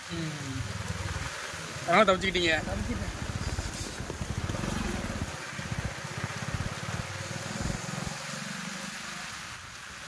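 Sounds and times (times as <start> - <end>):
rain and tyres hissing on wet road: 0.0 - 10.0
motorcycle engine running: 0.6 - 1.4, 2.0 - 8.6.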